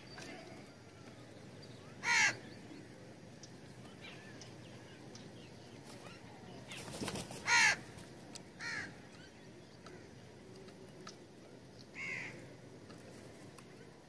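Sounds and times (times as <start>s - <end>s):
crows cawing: 2.0s - 2.4s, 7.4s - 7.9s, 8.6s - 9.0s, 12.0s - 12.4s.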